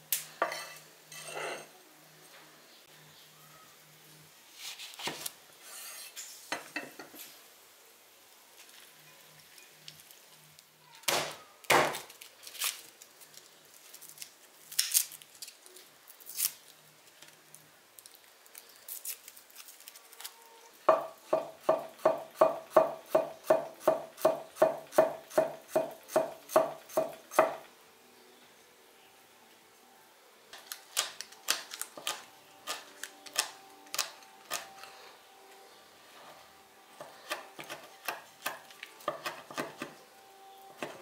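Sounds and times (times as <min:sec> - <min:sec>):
knife chopping on wooden board: 0:20.9 - 0:27.6.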